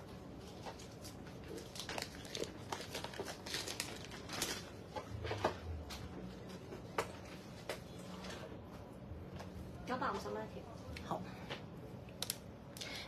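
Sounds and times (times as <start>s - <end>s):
plastic packaging crinkling: 0.4s - 5.6s.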